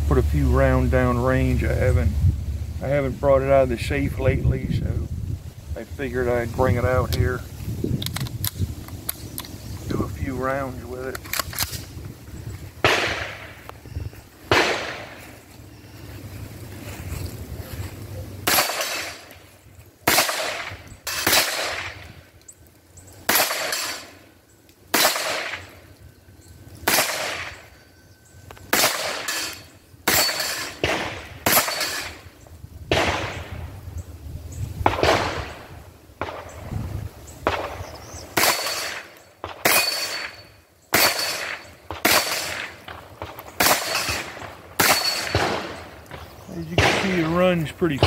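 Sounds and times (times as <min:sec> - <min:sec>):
rifle gunshots with echo: 0:12.8 - 0:13.7, 0:14.5 - 0:15.2, 0:18.4 - 0:19.3, 0:20.0 - 0:22.1, 0:23.3 - 0:24.2, 0:24.9 - 0:25.8, 0:26.8 - 0:27.7, 0:28.7 - 0:32.2, 0:32.9 - 0:33.7, 0:34.8 - 0:36.6, 0:37.4 - 0:48.0.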